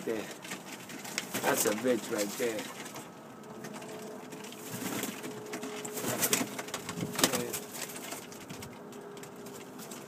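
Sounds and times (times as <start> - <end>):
pigeons cooing: 0.0 - 10.0
wing flapping: 0.4 - 10.0.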